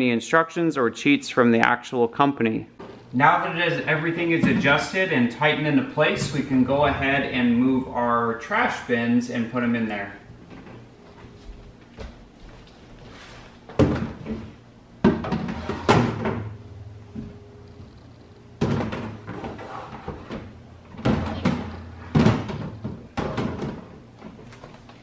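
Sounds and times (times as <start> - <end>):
plastic bins knocking: 18.6 - 24.4.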